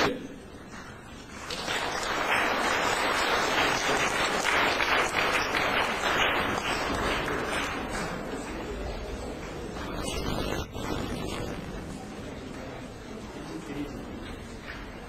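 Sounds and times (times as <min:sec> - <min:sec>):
audience applauding: 0:00.9 - 0:10.4.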